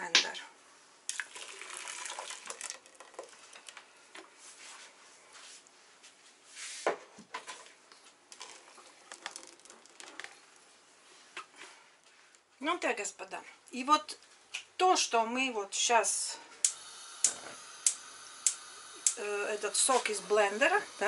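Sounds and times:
juice pouring into a steel pot: 1.1s - 3.8s, 8.3s - 10.6s.

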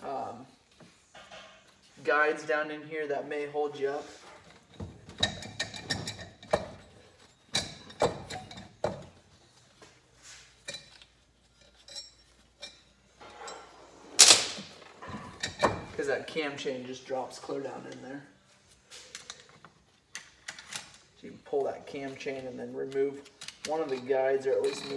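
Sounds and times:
metal clinks and knocks: 4.4s - 9.2s, 10.6s - 16.0s
loud metal clank: 13.2s - 14.9s.

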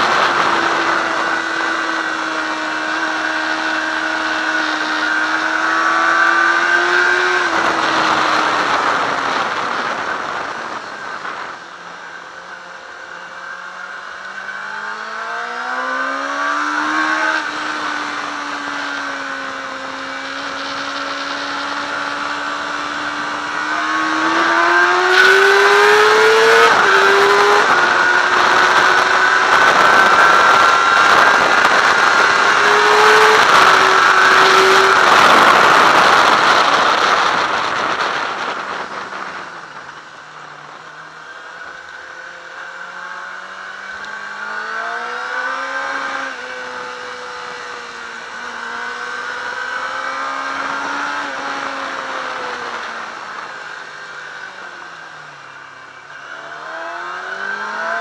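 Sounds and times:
heavy wind noise: 0.0s - 12.6s, 16.6s - 43.3s
motorcycle engine revving: 0.0s - 58.0s.

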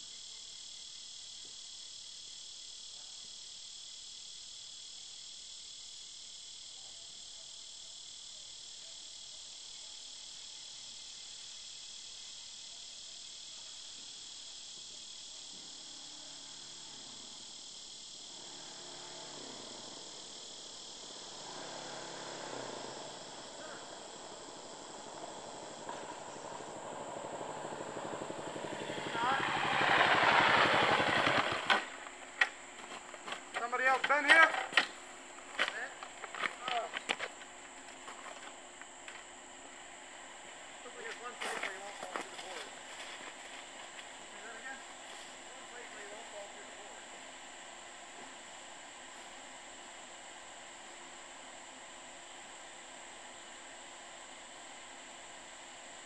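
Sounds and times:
high-pitched insect chorus: 0.0s - 56.0s
engine approaching: 15.9s - 34.1s.

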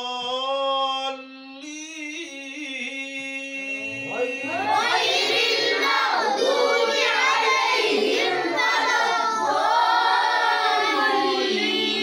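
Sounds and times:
boys chanting recitation: 3.5s - 12.0s.

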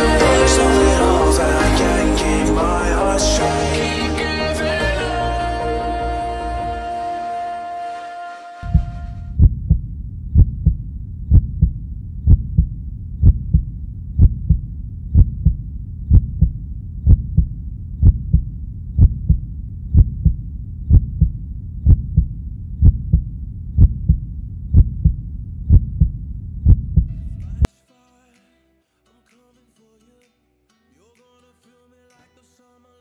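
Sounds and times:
heartbeat: 8.6s - 27.7s.

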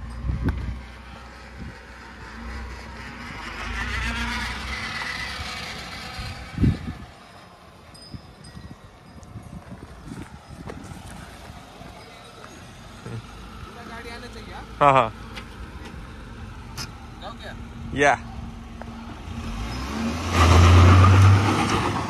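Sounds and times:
car engine and tyres passing: 0.0s - 22.0s.

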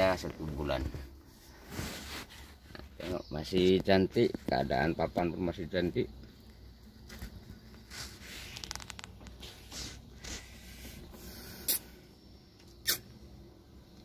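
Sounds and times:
rustling handling noise: 0.0s - 4.8s.

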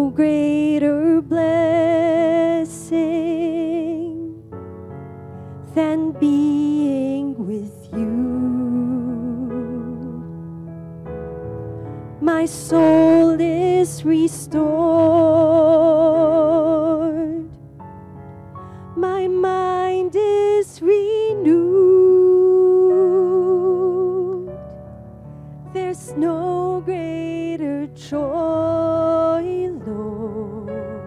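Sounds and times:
soft instrumental accompaniment: 0.0s - 31.0s
woman singing with vibrato: 5.7s - 10.3s, 12.2s - 17.6s, 19.0s - 24.5s, 25.8s - 31.0s.

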